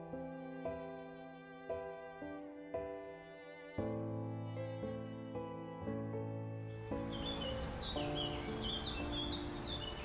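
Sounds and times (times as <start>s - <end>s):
slow sad string music: 0.0s - 10.0s.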